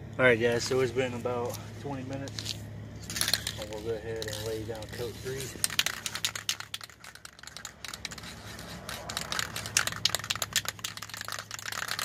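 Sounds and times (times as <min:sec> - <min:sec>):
spray can clicking and rattling: 0:02.4 - 0:12.0.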